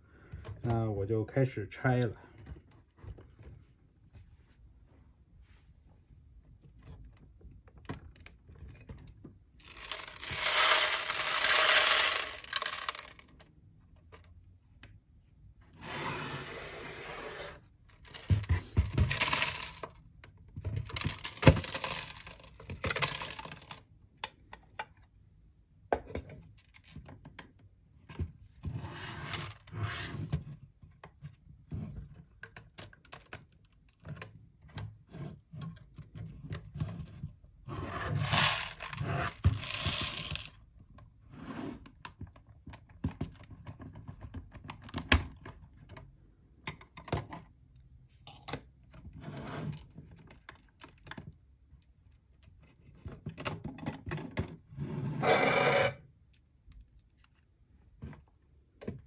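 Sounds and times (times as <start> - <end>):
plastic bricks clicking and snapping: 9.6 - 13.4, 20.8 - 25.0.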